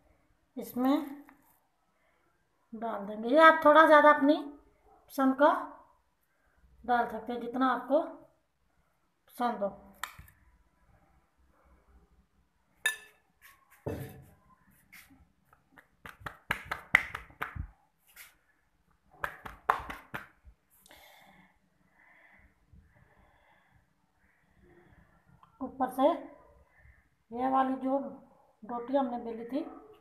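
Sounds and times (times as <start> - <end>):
metal spoon clinking on bowl: 12.8 - 13.2.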